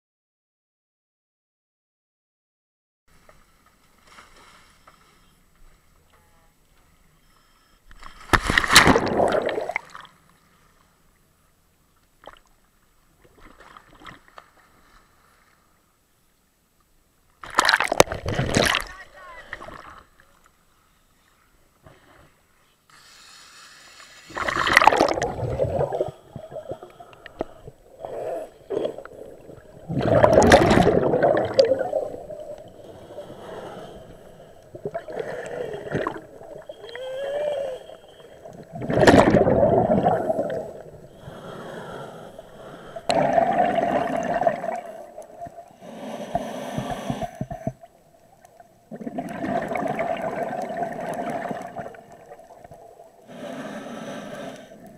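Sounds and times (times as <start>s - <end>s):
exhaled bubbles gurgling: 8.8s - 9.9s, 24.3s - 41.8s, 42.6s - 45.8s, 48.6s - 53.3s
regulator inhalation hiss: 22.9s - 24.4s, 32.8s - 34.6s, 41.1s - 43.1s, 45.7s - 47.7s, 53.3s - 54.9s.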